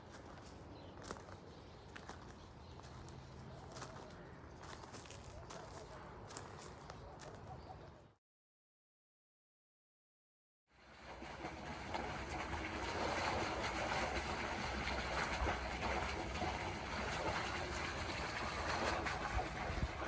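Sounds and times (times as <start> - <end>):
water gushing from hose into pool: 10.7 - 20.0.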